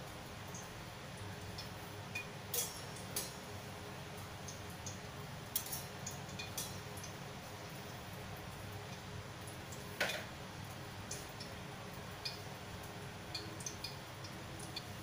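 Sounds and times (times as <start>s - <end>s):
kitchen utensils and dishes clinking: 2.5s - 3.4s.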